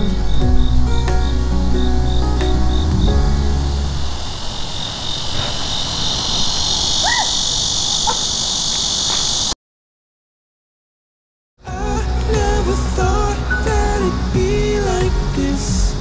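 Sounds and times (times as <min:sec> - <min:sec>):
background music: 0:00.0 - 0:04.3, 0:11.6 - 0:16.0
insect chorus: 0:03.6 - 0:09.6.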